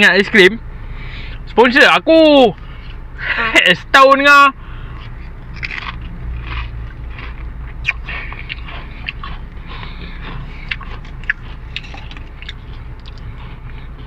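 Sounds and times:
low hum: 0:04.5 - 0:14.0
chewing crunchy crisps: 0:05.0 - 0:14.0.

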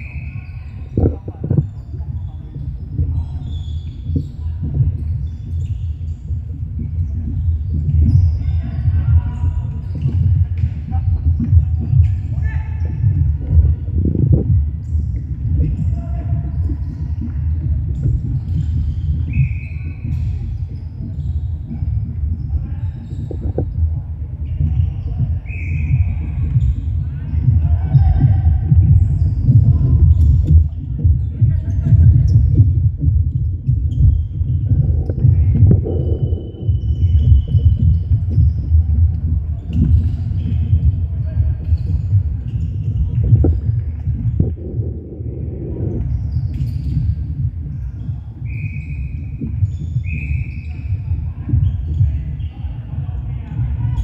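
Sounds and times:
low rumble of echoing hall: 0:00.0 - 0:54.0
players running on wooden court: 0:00.0 - 0:54.0.

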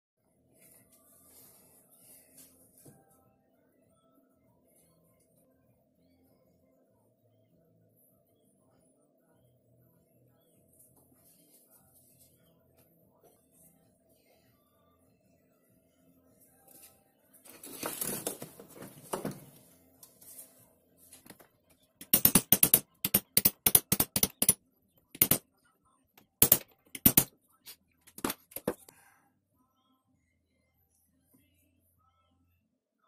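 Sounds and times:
rustle and scrape of parts: 0:16.7 - 0:21.4.

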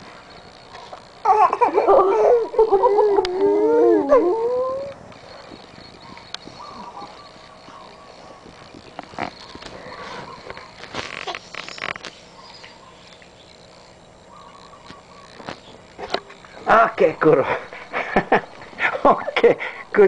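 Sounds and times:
dog howling: 0:01.9 - 0:05.4.

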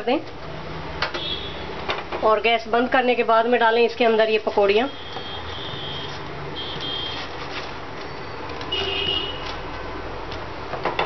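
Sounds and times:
short high-pitched beeps: 0:04.9 - 0:07.2.

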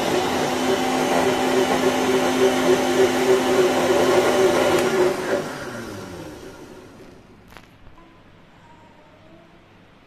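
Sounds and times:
mixer grinder motor whirring: 0:00.0 - 0:07.4.

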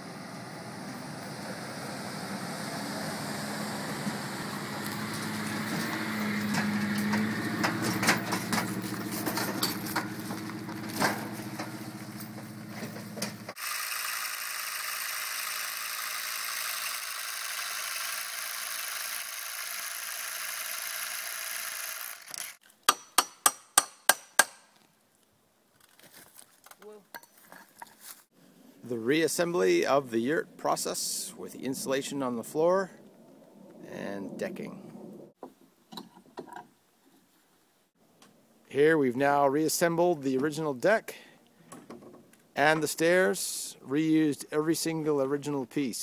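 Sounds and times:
pickup truck engine running: 0:03.8 - 0:13.5
clanks and rattles: 0:05.6 - 0:13.6
drill boring into soil: 0:13.5 - 0:22.6.

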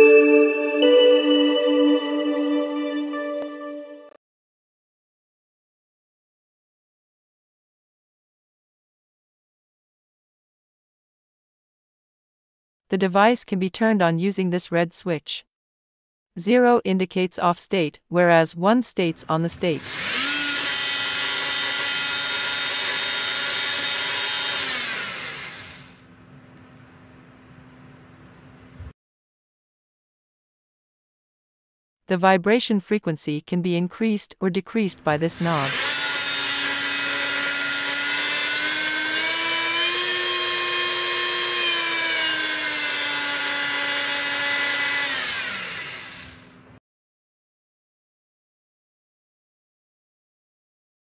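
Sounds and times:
oscillating multi-tool whine: 0:19.8 - 0:26.0, 0:35.4 - 0:46.5.

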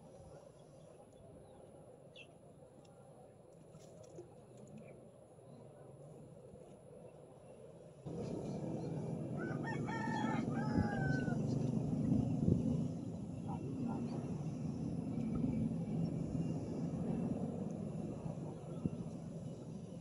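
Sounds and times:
steady low rumble: 0:08.1 - 0:20.0
rooster crowing: 0:09.4 - 0:11.6.

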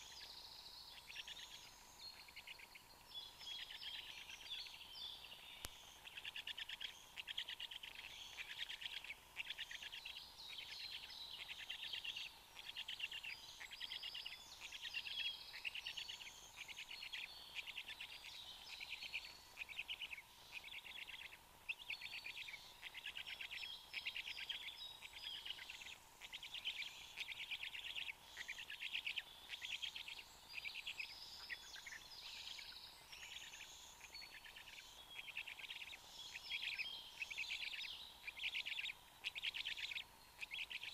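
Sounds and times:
songbirds singing: 0:00.0 - 0:40.9.

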